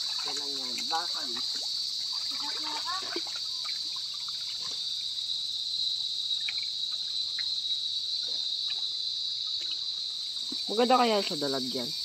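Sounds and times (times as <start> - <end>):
insects chorus: 0.0 - 12.0
faint small ticks: 3.1 - 11.4.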